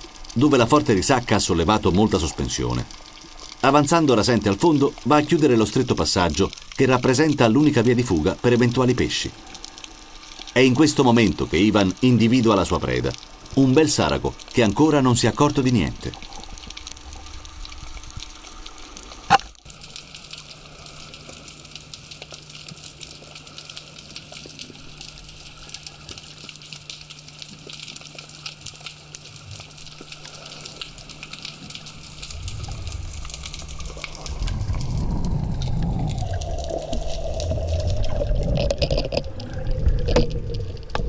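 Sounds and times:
underwater crackle and hiss: 0.0s - 41.0s
rush of water: 30.0s - 41.0s.

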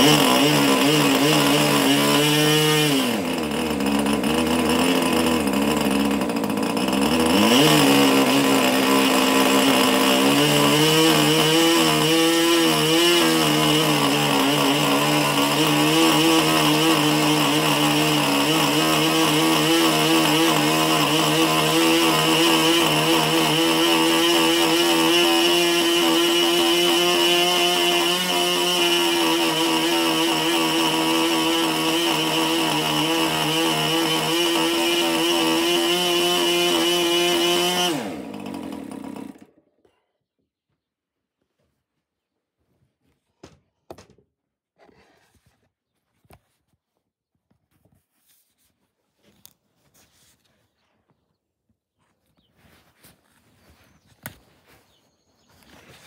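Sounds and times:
model engine running: 3.1s - 12.2s.

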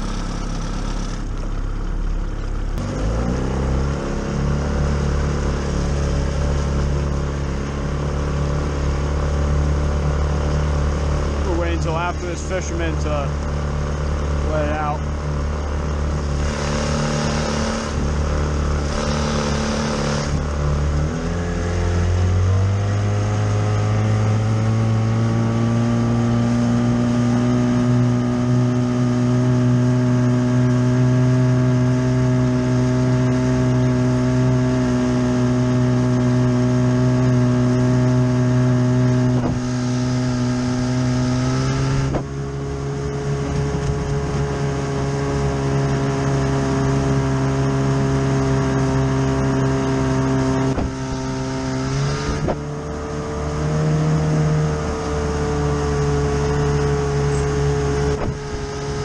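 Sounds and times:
outboard engine revving: 0.0s - 59.0s
wind and spray hissing: 50.6s - 52.6s.

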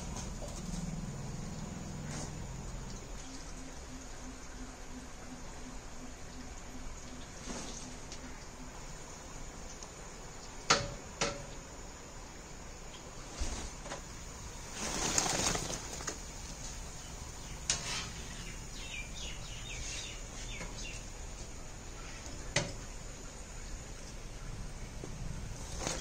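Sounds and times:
rustling flapping burst: 13.2s - 16.3s
bird chirps: 17.0s - 21.1s.

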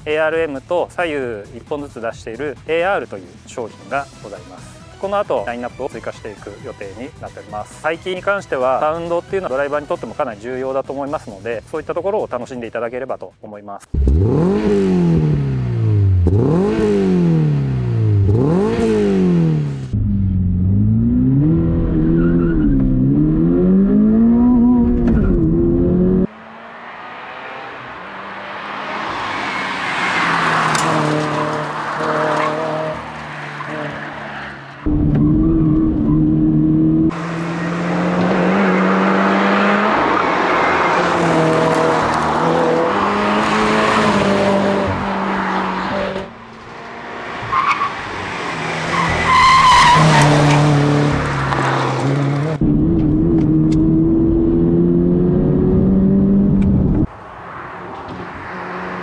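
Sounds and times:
car engine revving hard: 14.0s - 34.0s, 34.9s - 46.2s, 47.0s - 57.1s
tyre squeal: 22.0s - 22.9s, 48.9s - 50.4s.

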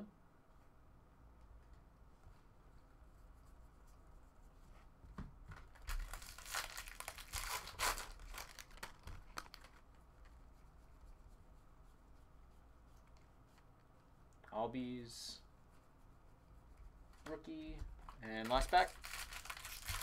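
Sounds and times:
foil wrapper tearing and crackling: 5.8s - 9.8s, 18.6s - 20.0s.

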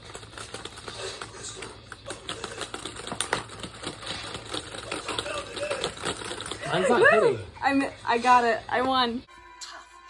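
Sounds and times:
plastic toy clicking and clacking: 0.0s - 6.6s.

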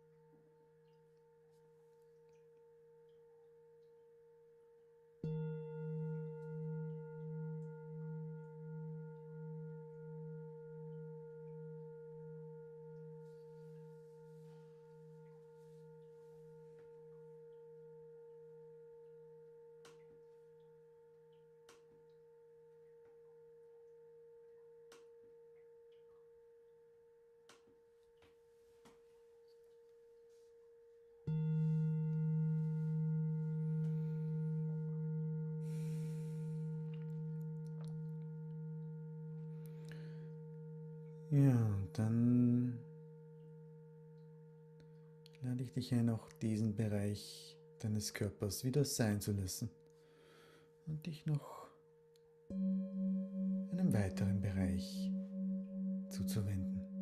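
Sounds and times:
singing bowl ringing: 0.0s - 27.4s, 29.4s - 47.9s, 51.8s - 57.0s.

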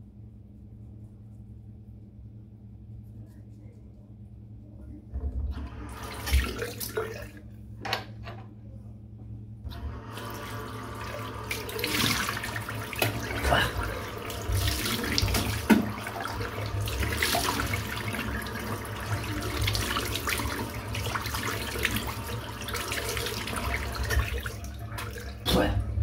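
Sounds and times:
tap water running into sink: 5.5s - 8.0s, 9.7s - 25.5s
water splashing: 10.2s - 25.7s.

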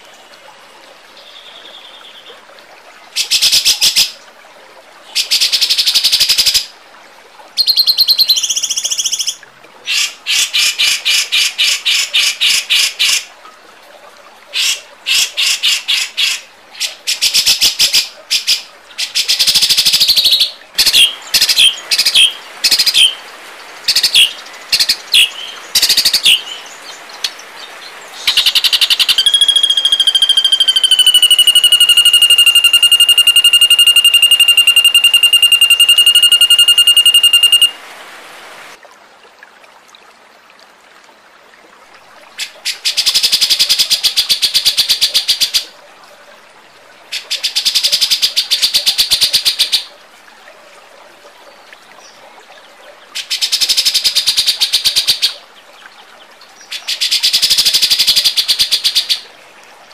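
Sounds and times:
songbird chattering calls: 7.6s - 10.5s, 23.9s - 37.8s
high bird trill: 28.2s - 37.8s.

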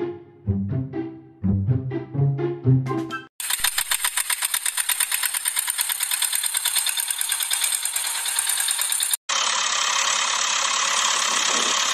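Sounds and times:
engine chugging: 3.4s - 11.9s
smooth engine drone: 3.5s - 11.9s.

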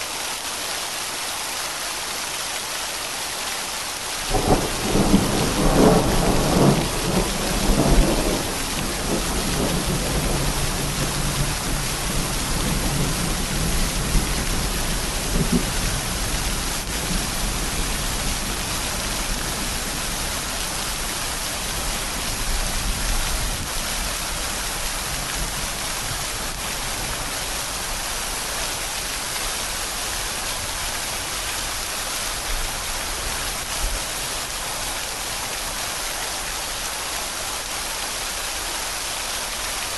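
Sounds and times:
rain hissing: 0.0s - 39.9s
thunder rumbling: 4.3s - 21.1s.

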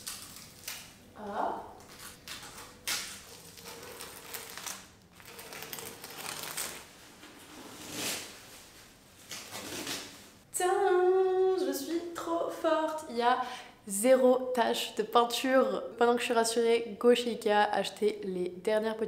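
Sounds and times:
plastic sheeting peeling and crinkling: 0.0s - 1.0s, 1.8s - 10.4s.

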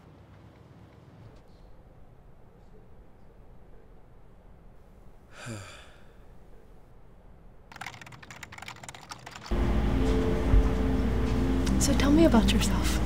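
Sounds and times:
person sighing: 5.3s - 6.2s
fast typing on keyboard: 7.7s - 9.5s.

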